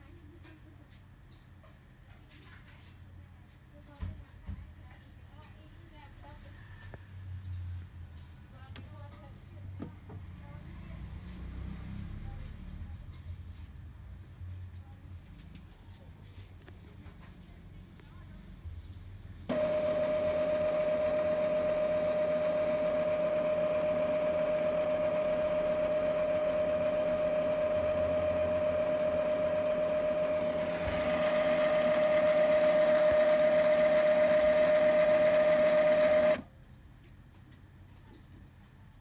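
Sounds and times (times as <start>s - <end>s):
printer motor whine: 19.5s - 36.4s.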